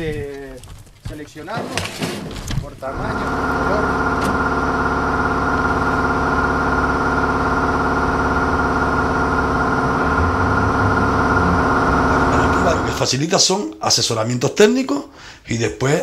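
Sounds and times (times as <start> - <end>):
loud steady machine hum: 2.9 - 13.1.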